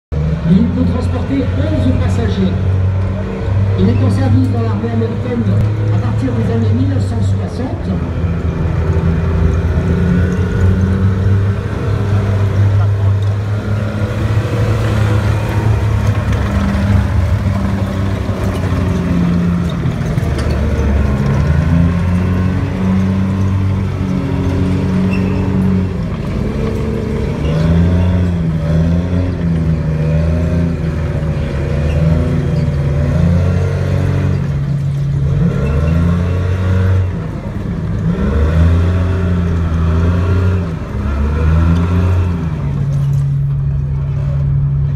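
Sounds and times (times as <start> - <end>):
tracked vehicle engine revving: 0.1 - 44.9.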